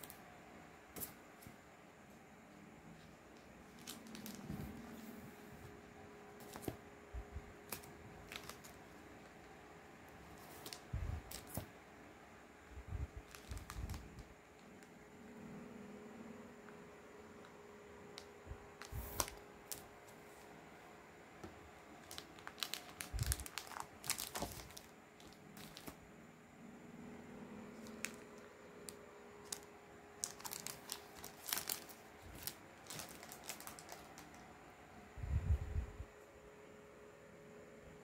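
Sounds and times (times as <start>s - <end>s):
faint steady hum: 0.0s - 38.0s
plastic bags crinkling: 3.7s - 5.0s, 6.4s - 6.8s, 7.6s - 8.8s, 10.3s - 11.6s, 13.2s - 14.3s, 18.2s - 19.9s, 22.0s - 26.0s, 27.7s - 34.5s.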